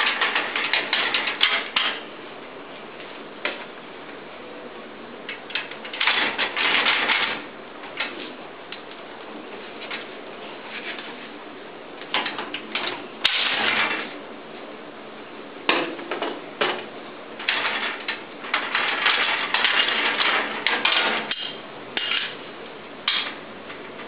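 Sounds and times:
hard objects knocking and rattling: 17.4s - 22.3s.

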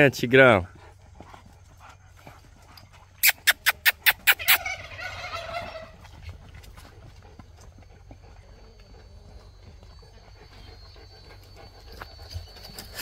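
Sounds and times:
fowl calling harshly: 3.2s - 6.0s.

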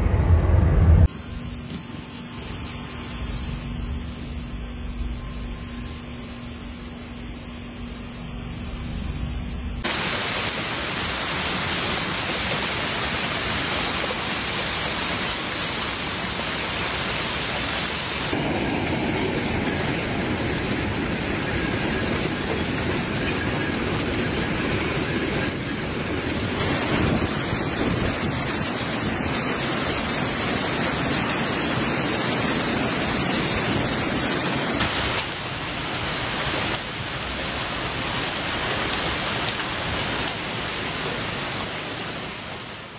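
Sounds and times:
hail and heavy rain pelting: 18.3s - 42.9s.

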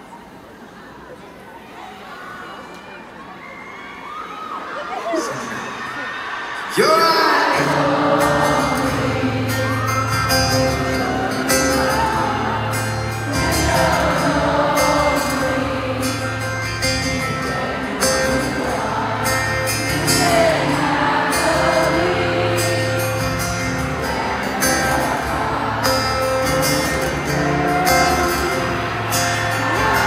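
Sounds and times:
band playing: 6.7s - 30.0s.

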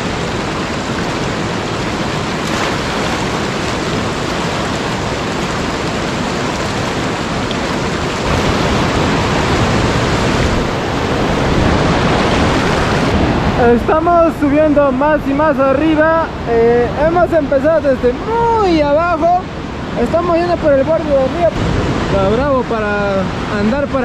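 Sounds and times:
river rushing over rocks: 0.0s - 24.0s.

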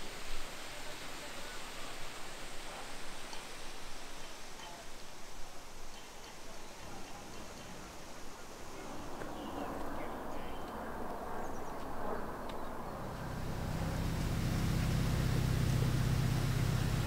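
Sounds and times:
boat engine running: 12.8s - 17.0s.

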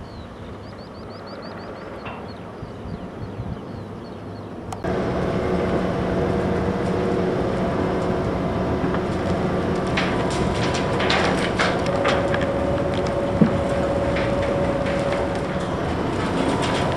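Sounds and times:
excavator machine drone: 4.6s - 16.9s
crackles and clatters: 4.7s - 16.9s.

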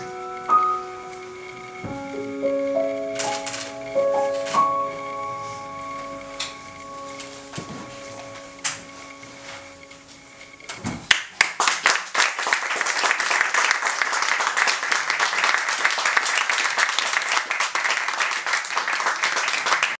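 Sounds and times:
grand piano notes: 0.0s - 10.7s
audience applause: 11.1s - 20.0s.

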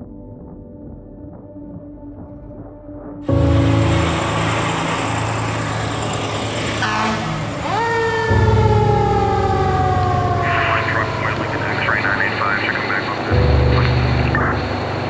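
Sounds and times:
siren rising and falling: 3.3s - 14.8s
fire engine running: 3.3s - 15.0s
loud road noise: 3.3s - 15.0s.

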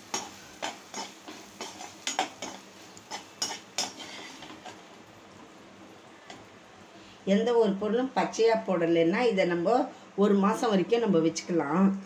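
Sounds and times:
metal spatula scraping a pan: 0.0s - 4.8s.

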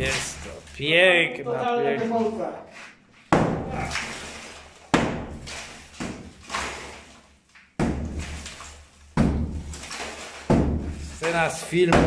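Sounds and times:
sledgehammer striking brick wall: 3.3s - 7.1s, 7.8s - 12.0s
brick breaking: 7.8s - 12.0s.

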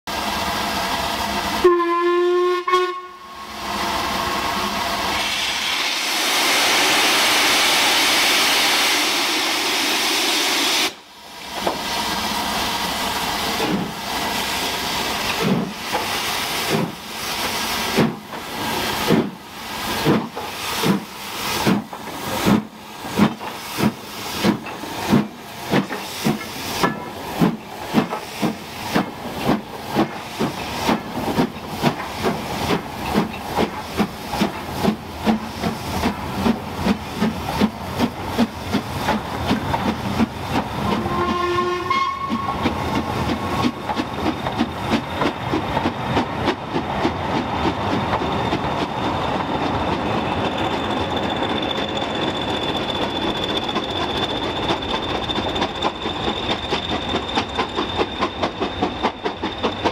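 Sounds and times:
steam locomotive whistle: 1.6s - 3.6s, 40.9s - 42.7s
steam hissing: 3.4s - 59.9s.

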